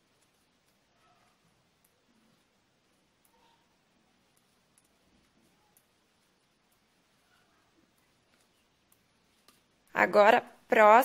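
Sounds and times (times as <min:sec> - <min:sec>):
faint knitting needle clicks: 0:01.7 - 0:10.0.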